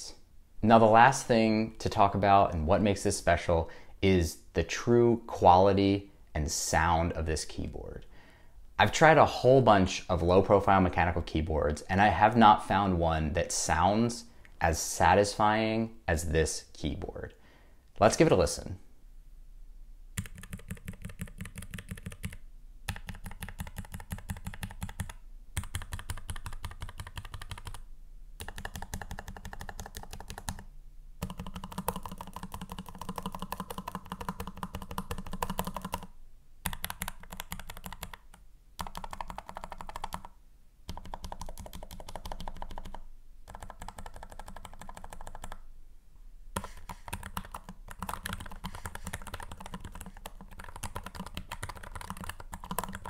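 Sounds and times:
mechanical keyboard typing: 20.2s - 27.8s, 28.4s - 30.6s, 31.2s - 40.3s, 40.9s - 45.6s, 46.6s - 53.0s.

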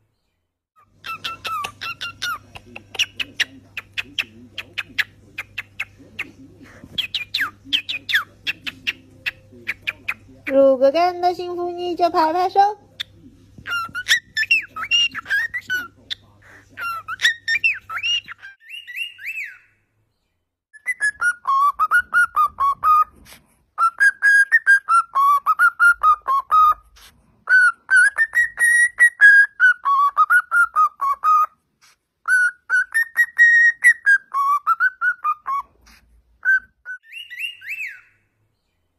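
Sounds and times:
bird chirps and warbles: 0.0s - 11.5s, 13.0s - 23.1s, 32.2s - 38.9s
cockatiel whistling a tune: 13.6s - 15.9s, 16.8s - 19.7s, 20.8s - 23.2s, 23.8s - 26.8s, 27.5s - 31.5s, 32.2s - 35.7s, 36.4s - 38.2s.

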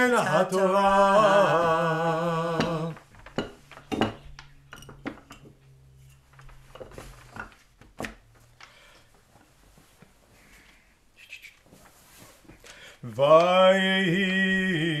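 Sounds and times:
person singing with vibrato: 0.0s - 3.0s, 13.0s - 15.0s
wooden rollers knocking: 0.9s - 8.8s.

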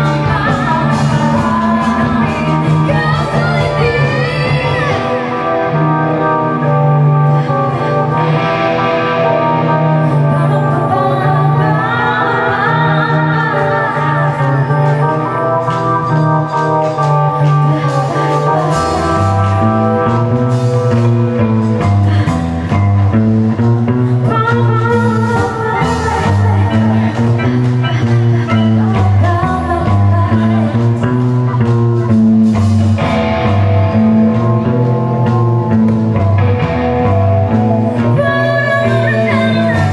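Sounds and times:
live band music: 0.0s - 39.9s
person singing: 0.0s - 39.9s
low bass line and percussion: 12.5s - 39.9s.

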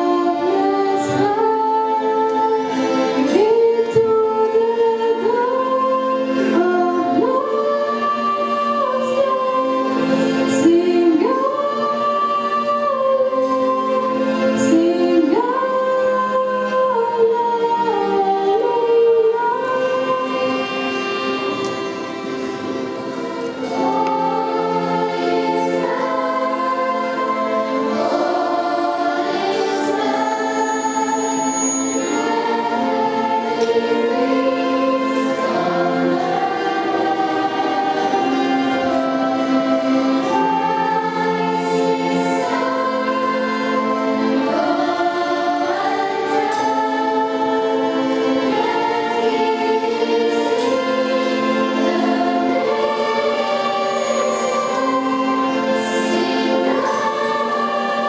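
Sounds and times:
children's choir singing: 0.0s - 58.0s.

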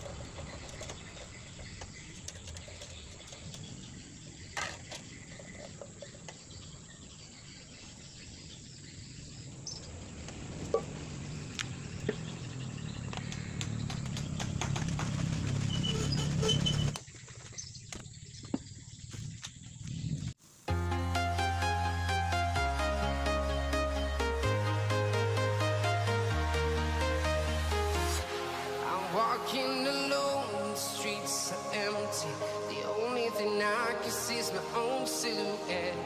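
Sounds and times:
bird chirps: 0.0s - 20.3s
insects: 0.0s - 20.7s, 27.2s - 36.0s
low rumble: 9.0s - 17.0s.

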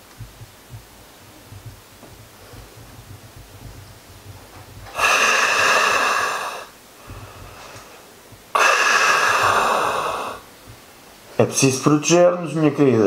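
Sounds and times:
breaths through gas mask filter: 4.9s - 10.5s.

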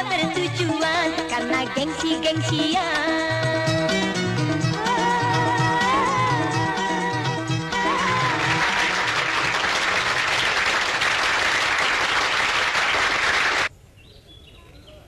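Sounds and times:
audience applause: 7.9s - 13.7s.

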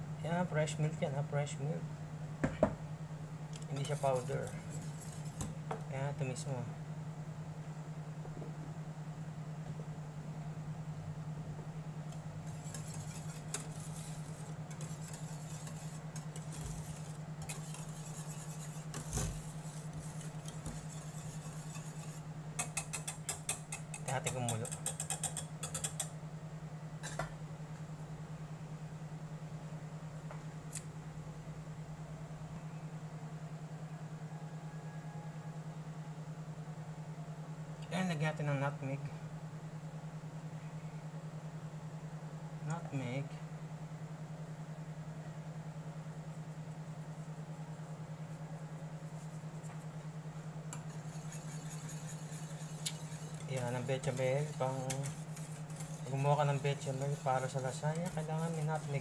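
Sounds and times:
pulsing cooktop hum: 0.0s - 59.0s
metal whisk clinking on pot: 20.8s - 26.1s, 50.8s - 59.0s.

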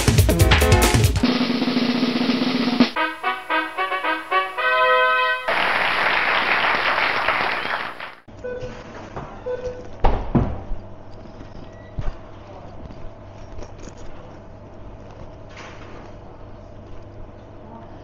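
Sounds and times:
steady hum: 0.1s - 6.8s
applause-like rush: 5.4s - 8.3s.

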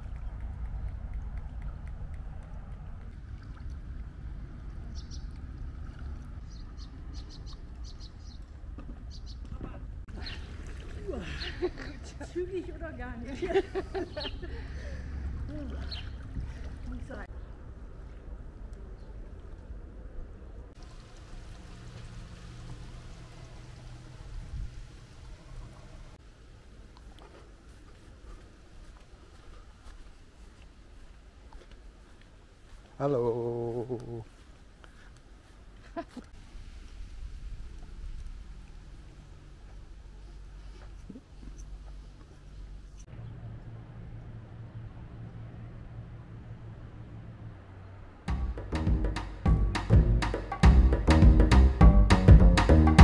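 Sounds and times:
low outdoor rumble: 0.0s - 53.0s
food bubbling and sizzling: 20.8s - 26.2s.

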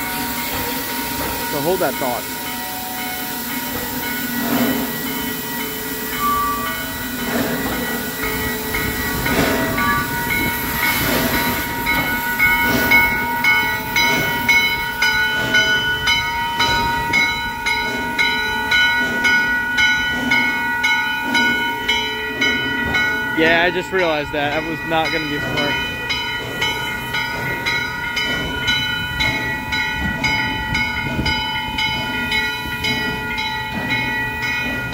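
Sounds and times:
steam hiss: 0.0s - 18.4s
crossing warning bell ringing: 0.0s - 34.9s
steam locomotive chuffing: 0.0s - 34.9s.

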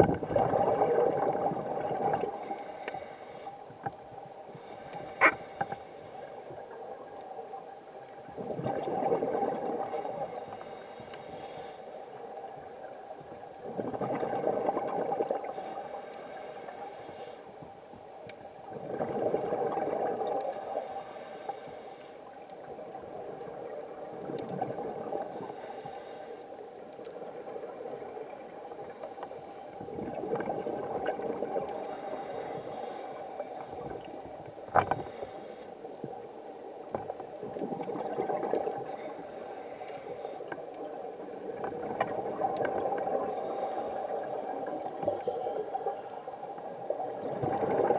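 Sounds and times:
exhaled bubbles rushing: 0.0s - 2.3s, 8.4s - 9.9s, 13.6s - 15.5s, 18.7s - 20.4s, 47.1s - 47.9s
regulator inhalation hiss: 2.3s - 3.7s, 4.5s - 6.5s, 9.9s - 12.2s, 15.5s - 17.6s, 20.5s - 22.3s, 25.2s - 26.7s, 28.7s - 29.8s, 31.7s - 34.1s, 35.0s - 35.9s, 37.7s - 40.6s, 43.2s - 46.6s.

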